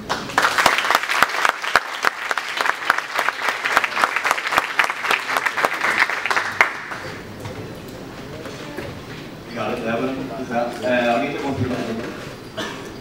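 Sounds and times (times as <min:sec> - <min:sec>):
audience clapping: 0:00.0 - 0:07.3.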